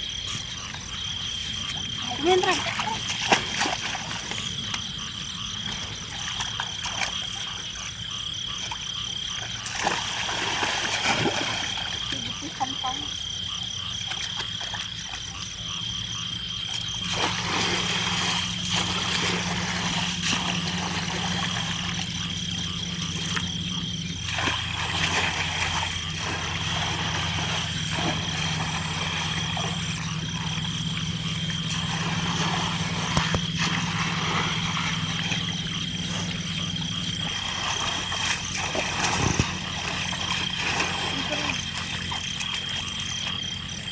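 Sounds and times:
steady low hum: 0.0s - 43.9s
water sloshing and splashing: 0.0s - 43.9s.

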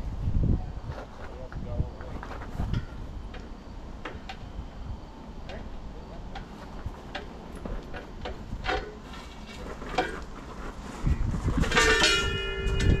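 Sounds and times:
heavy metal clank ringing: 11.6s - 13.0s
metal parts clinking and knocking: 11.6s - 13.0s.

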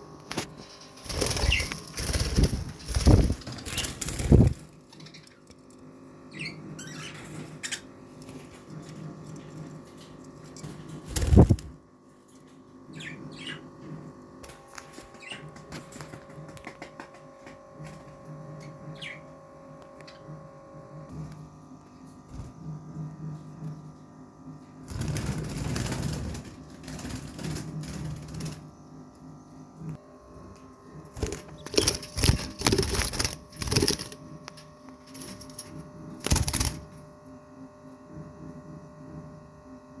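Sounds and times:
steady low hum: 0.0s - 40.0s
birds fluttering in nest box: 0.2s - 5.2s, 6.4s - 11.8s, 24.8s - 28.7s, 31.1s - 34.4s, 35.0s - 36.9s.

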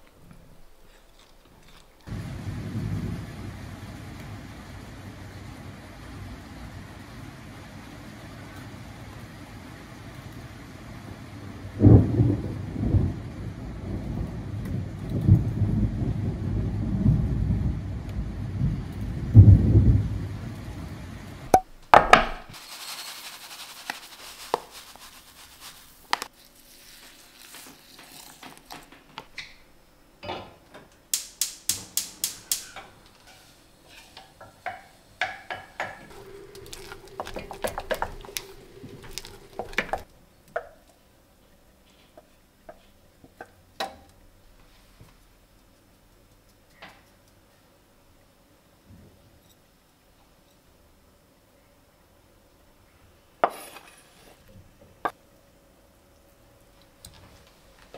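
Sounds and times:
rain: 2.0s - 21.6s, 34.2s - 40.1s
thunder rumbling: 2.1s - 21.5s, 36.1s - 40.1s
sharp clicks of gas stove: 30.2s - 33.0s
saucepan and utensils knocking: 34.5s - 40.0s.

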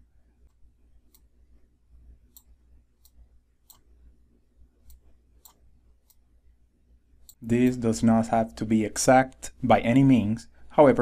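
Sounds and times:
low steady hum: 0.0s - 11.0s
computer mouse clicks: 0.4s - 1.3s, 2.3s - 3.9s, 4.8s - 6.2s.

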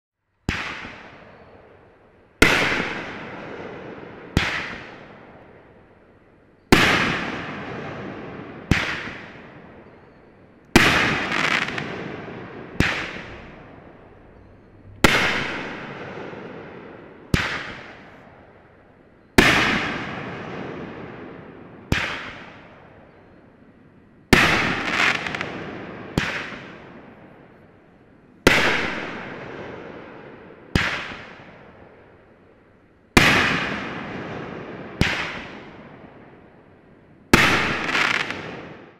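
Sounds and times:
firework bangs: 2.4s - 5.2s, 6.7s - 9.8s, 10.7s - 18.4s, 19.4s - 22.8s, 24.3s - 27.3s, 33.2s - 36.0s.

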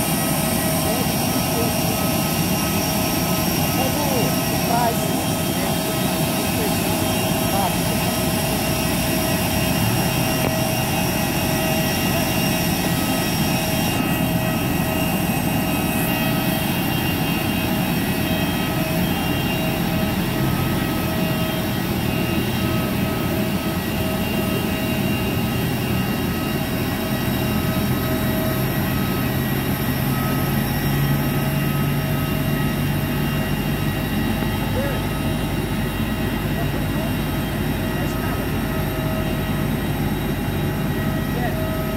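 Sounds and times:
jet turbine whine: 0.0s - 41.9s
tug engine drone: 0.0s - 41.9s.

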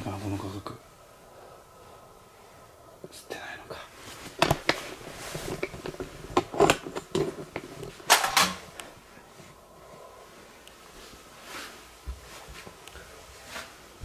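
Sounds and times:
rustling: 3.8s - 14.0s.

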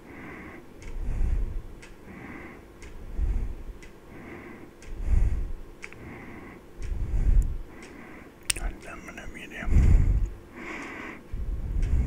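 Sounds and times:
sharp ticks: 0.8s - 6.1s, 6.8s - 9.4s.

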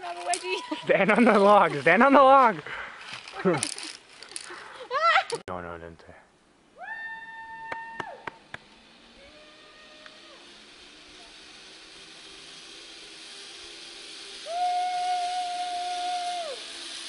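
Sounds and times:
pulley rolling on steel cable: 0.0s - 2.5s, 3.1s - 4.5s, 8.0s - 17.0s.

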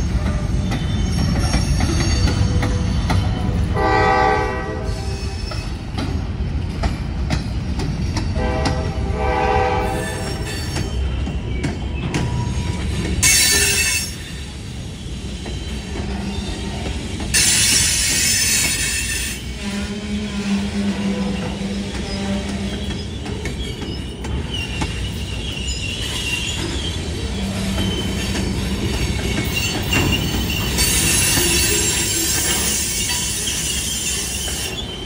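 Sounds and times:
freight train rumbling past: 0.0s - 35.0s
locomotive horn blasts: 3.8s - 5.4s, 8.4s - 10.4s, 19.5s - 22.8s
wheels clicking over rail joints: 5.5s - 9.0s, 21.3s - 34.9s.

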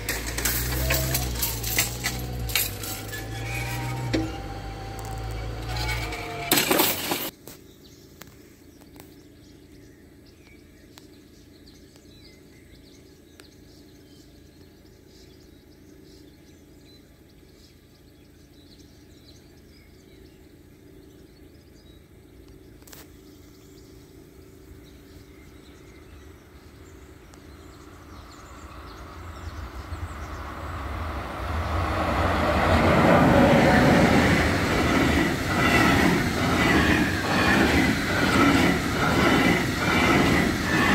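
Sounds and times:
freight train rumbling: 0.0s - 7.3s, 24.6s - 40.9s
wagon wheels clattering over rails: 0.0s - 7.3s, 31.7s - 40.9s.

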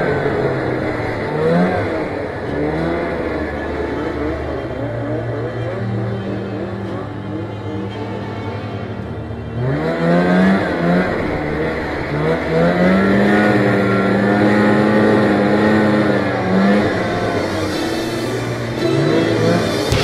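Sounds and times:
snowmobile engine revving: 0.0s - 20.0s.

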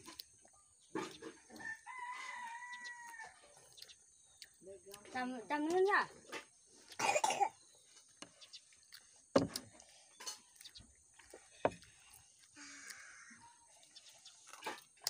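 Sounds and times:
person coughing: 7.0s - 7.6s.

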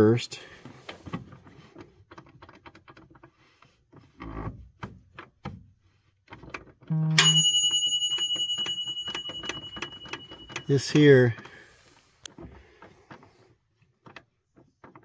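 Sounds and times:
high ringing tone: 6.9s - 11.7s.

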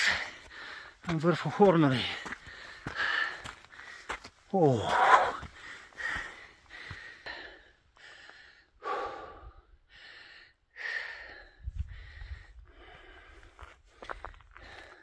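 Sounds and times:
person breathing hard: 0.0s - 1.0s, 2.0s - 15.0s.

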